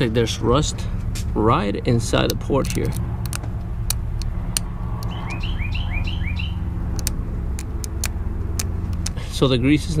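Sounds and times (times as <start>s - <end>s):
steady low rumble: 0.0s - 10.0s
sharp ticks: 2.2s - 9.2s
bird chirping: 3.9s - 9.1s.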